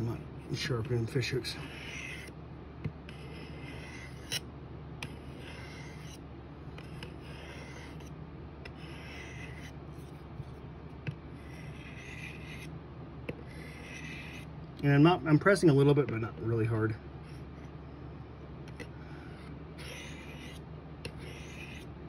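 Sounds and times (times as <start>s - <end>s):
knife blade scraping on sharpener: 3.1s - 6.2s, 11.4s - 12.7s, 13.4s - 14.5s, 19.8s - 21.9s.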